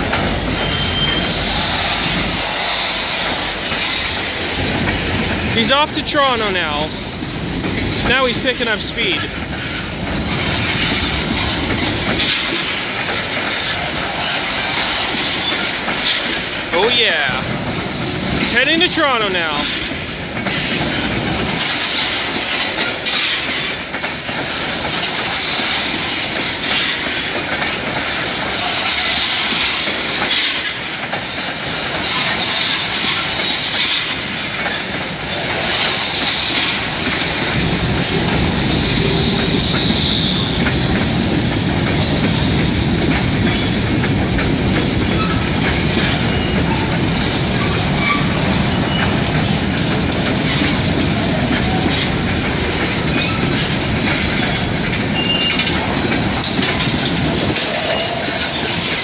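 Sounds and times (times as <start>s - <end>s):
train wheels rumbling over rails: 0.0s - 59.0s
high wheel squeal: 0.5s - 2.1s, 39.5s - 40.5s, 47.6s - 49.8s, 55.2s - 55.7s.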